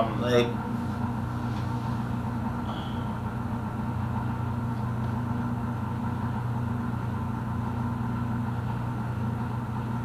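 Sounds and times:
snowmobile engine idling: 0.1 - 4.7.

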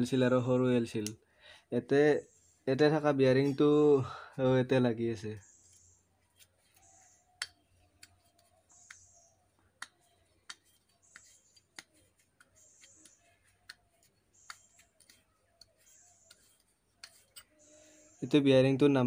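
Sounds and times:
faint high chirp: 5.2 - 18.4.

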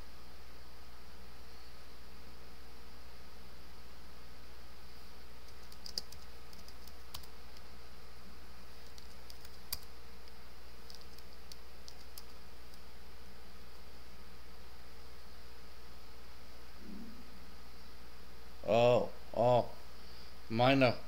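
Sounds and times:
electrical hum and hiss: 0.0 - 21.0
keyboard clicks: 5.5 - 7.6, 8.8 - 12.8.

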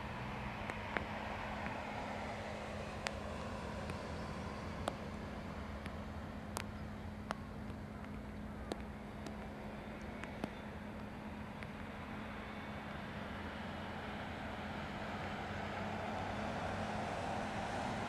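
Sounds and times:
distant jet rumble: 0.0 - 18.0
sharp ticks: 5.8 - 11.9.

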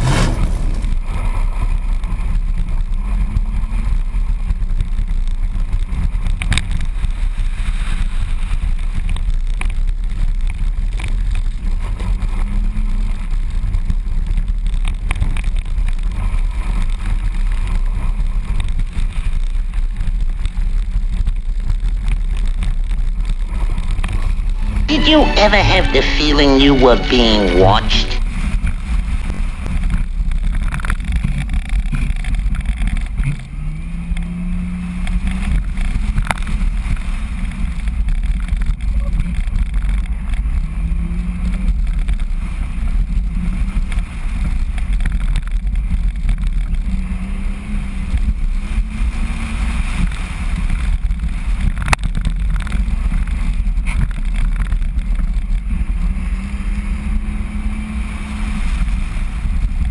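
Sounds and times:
rally car engine revving: 0.0 - 4.2
tyres rumbling on gravel: 0.0 - 24.9.

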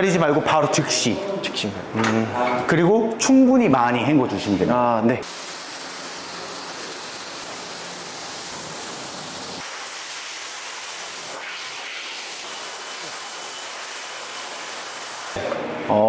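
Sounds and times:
pressure washer spraying water: 5.2 - 15.4.

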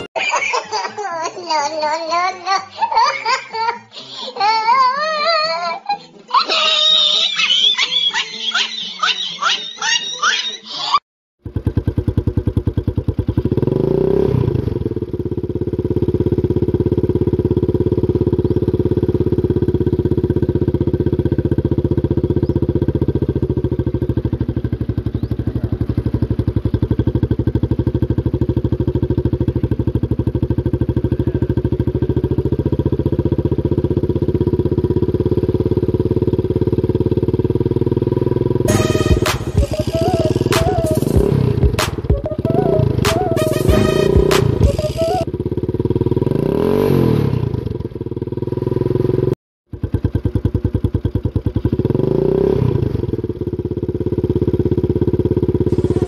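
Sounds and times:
small engine running and revving: 11.4 - 56.0.

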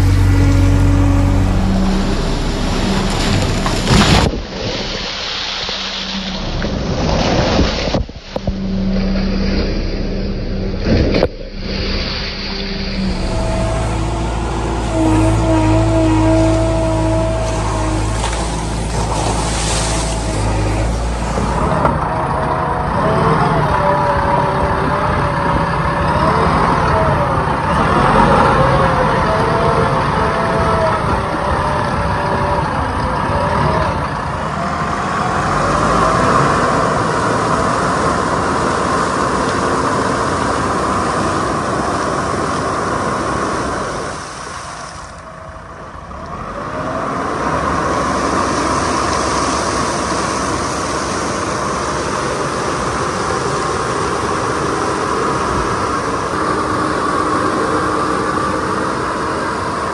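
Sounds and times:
tyres splashing through water: 0.0 - 9.8, 10.7 - 59.9
diesel engine under load: 0.0 - 59.9.

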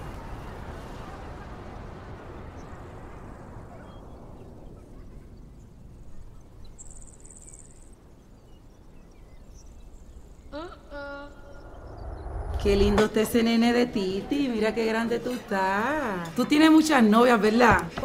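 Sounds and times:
low rumble with hiss: 8.0 - 15.8.

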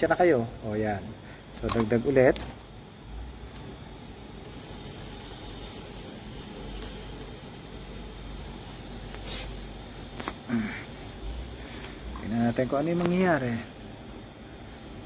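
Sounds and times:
low steady hum: 0.0 - 15.0
refrigerant hissing through hose: 4.4 - 13.7.

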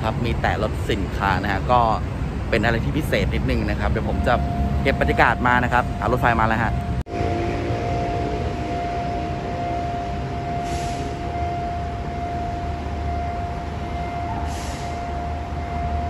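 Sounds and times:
city traffic rumble: 0.0 - 16.0
level crossing warning tone: 2.6 - 16.0
short hisses: 14.5 - 15.0.

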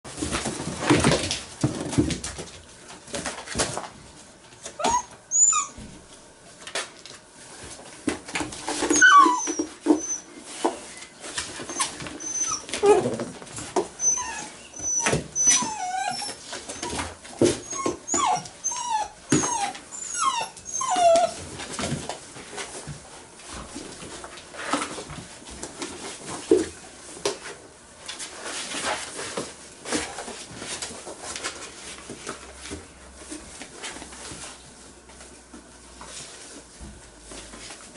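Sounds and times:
paws scrabbling in cardboard box: 0.1 - 37.9
puppies whimpering and yipping: 4.7 - 6.0, 8.8 - 11.0, 11.6 - 13.2, 14.0 - 21.4.

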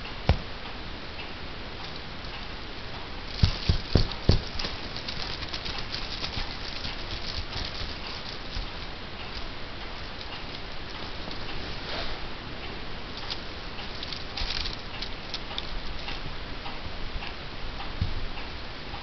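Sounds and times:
kitten scratching and rustling: 1.7 - 12.2, 13.2 - 16.4.

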